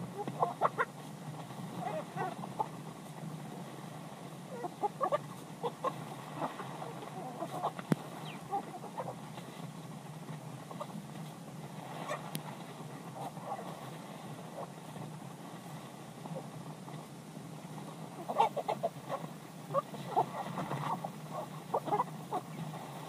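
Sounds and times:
low background noise: 0.0 - 23.0
chickens clucking: 0.1 - 1.0, 1.7 - 2.7, 4.5 - 9.2, 12.0 - 12.4, 13.1 - 13.8, 14.5 - 14.8, 18.2 - 23.0.

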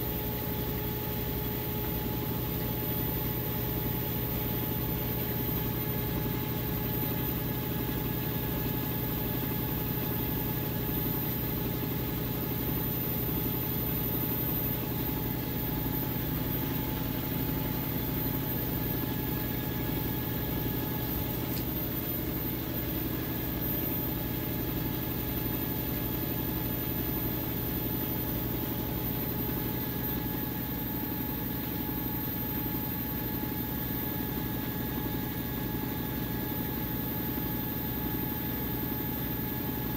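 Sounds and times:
washing machine motor hum: 0.0 - 39.9.

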